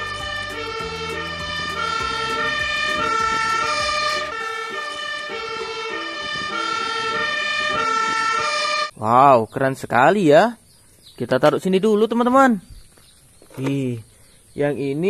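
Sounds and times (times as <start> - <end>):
fire engine two-tone siren: 0.0 - 8.9.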